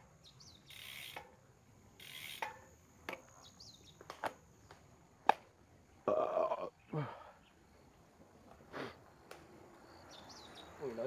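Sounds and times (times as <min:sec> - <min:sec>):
faint bird chirps: 0:00.2 - 0:01.3, 0:09.8 - 0:11.0
bicycle clicks and knocks: 0:02.0 - 0:03.4.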